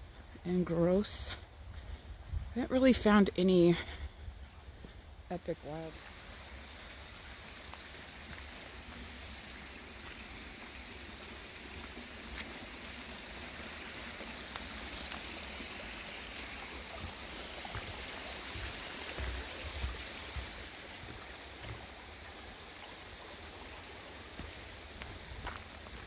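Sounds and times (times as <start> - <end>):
creek water rushing: 5.1 - 26.0
footsteps on dirt: 6.8 - 15.2, 24.4 - 26.0.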